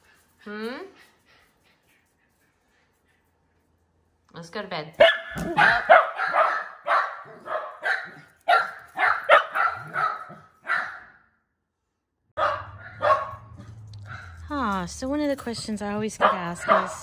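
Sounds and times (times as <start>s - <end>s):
dog barking sharply: 5.0s - 11.2s, 12.4s - 14.4s, 16.2s - 17.0s.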